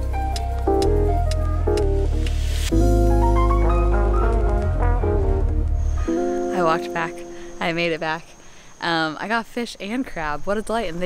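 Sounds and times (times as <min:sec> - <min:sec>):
deep bass line: 0:00.0 - 0:06.9
held chords: 0:00.0 - 0:08.4.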